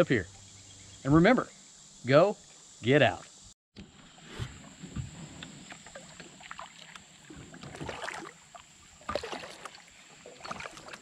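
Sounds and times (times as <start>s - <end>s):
paddle splashing in water: 3.9s - 11.0s
water dripping off paddle: 5.3s - 11.0s.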